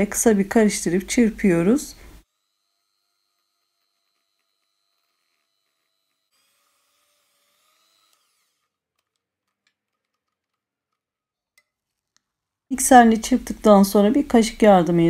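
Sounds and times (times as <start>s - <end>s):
hand mixer motor whining: 2.2s - 9.2s.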